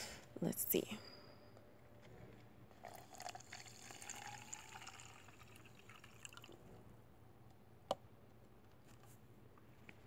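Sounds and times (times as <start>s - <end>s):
liquid pouring into plastic cup: 2.7s - 6.7s.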